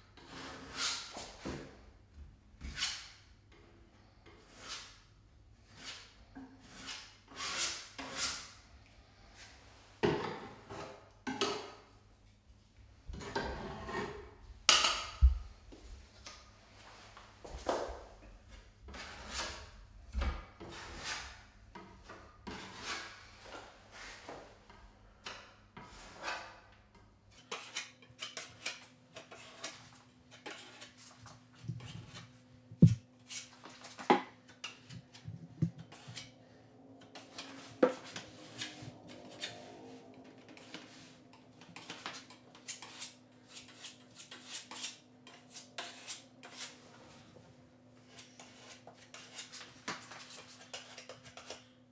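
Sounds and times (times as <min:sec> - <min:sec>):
putty knife scraping: 0:04.2 - 0:05.0, 0:05.6 - 0:08.6, 0:18.9 - 0:19.7, 0:27.3 - 0:31.2, 0:34.5 - 0:36.4, 0:37.0 - 0:39.8, 0:40.5 - 0:47.1, 0:48.0 - 0:51.7.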